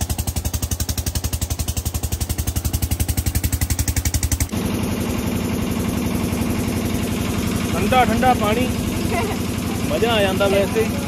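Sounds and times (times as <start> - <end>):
engine chugging: 0.0 - 11.0.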